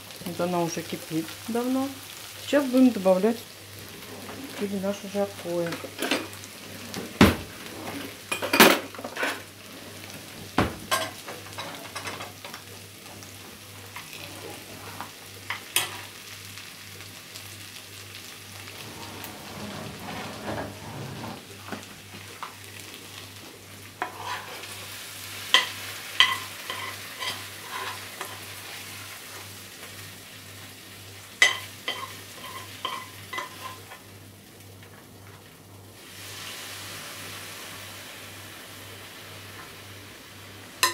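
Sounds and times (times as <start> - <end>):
metal spoon scraping a frying pan: 18.7 - 21.4, 24.0 - 24.8, 25.6 - 28.5, 31.4 - 34.0
sizzling hiss: 21.5 - 34.7, 35.9 - 40.9.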